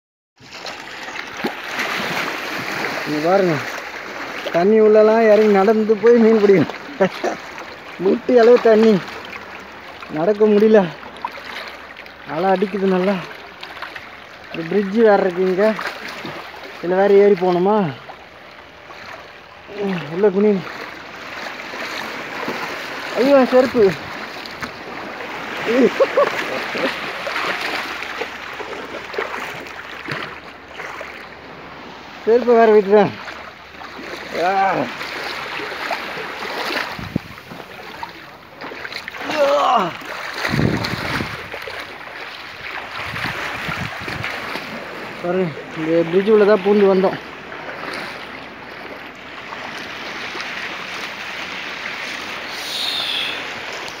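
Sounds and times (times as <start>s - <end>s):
sea waves washing in: 0.4s - 54.0s
seawater sloshing and splashing: 0.4s - 54.0s.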